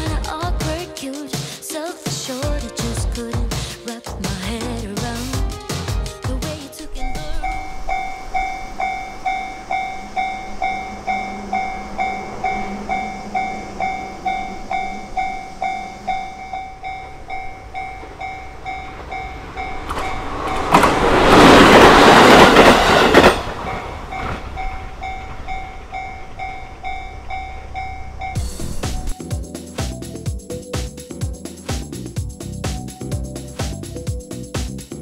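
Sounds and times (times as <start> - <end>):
train passing: 6.8 - 30.6
railway crossing two-tone bell: 6.8 - 31.6.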